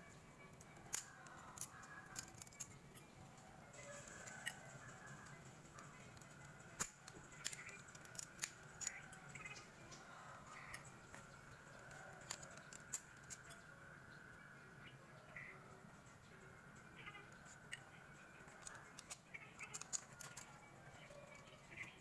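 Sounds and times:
screwdriver clicking and scraping: 0.6s - 3.1s, 3.9s - 9.5s, 10.5s - 13.6s, 18.4s - 21.9s.

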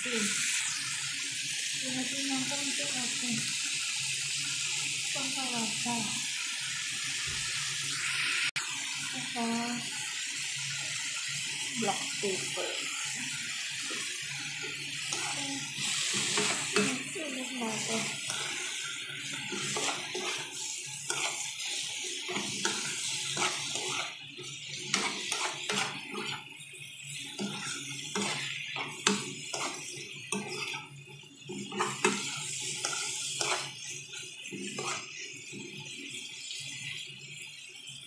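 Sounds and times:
vegetables sizzling in frying pan: 0.0s - 38.0s
metal spoon scraping pan: 12.9s - 35.8s.

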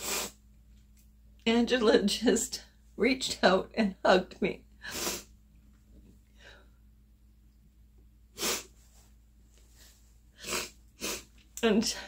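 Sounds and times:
woman sniffling: 4.8s - 5.3s, 10.4s - 11.3s
faint breathing: 6.3s - 6.8s.

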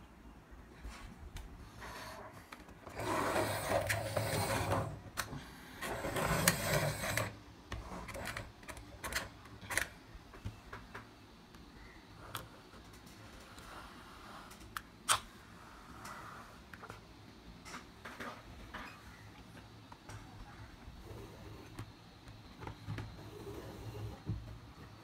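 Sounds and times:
toy car wheels rolling on wood: 2.8s - 5.1s, 5.8s - 9.3s.

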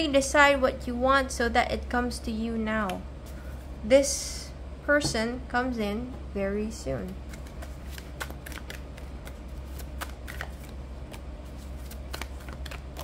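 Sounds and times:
cards shuffled by hand: 7.3s - 13.0s.

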